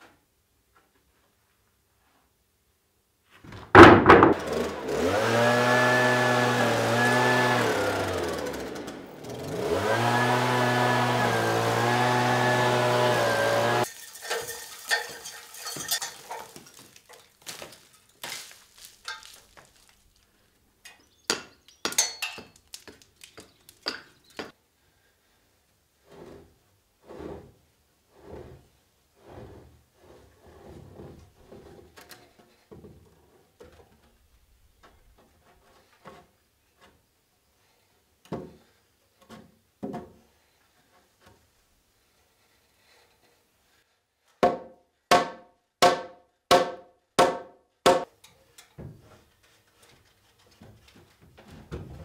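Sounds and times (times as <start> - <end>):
wood knocking against wood and steel: 3.5 - 4.6, 21.2 - 24.5, 44.4 - 49.2.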